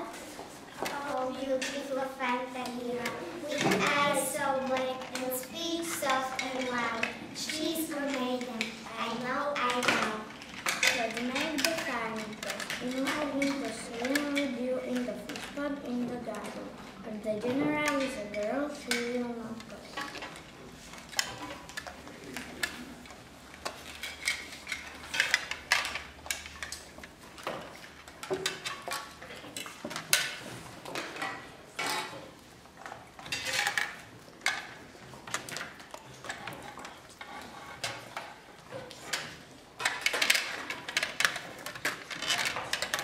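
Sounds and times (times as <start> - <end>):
tableware clinking and knocking: 23.8 - 32.2, 33.2 - 38.1.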